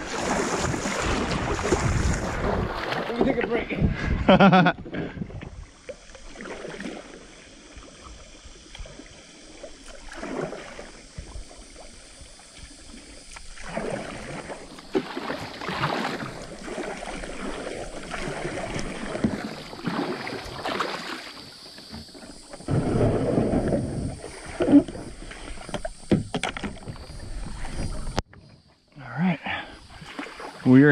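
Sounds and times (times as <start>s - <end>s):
water washing along hull: 0.0s - 28.3s, 29.5s - 30.9s
paddle strokes splashing water: 0.0s - 28.6s, 29.7s - 30.9s.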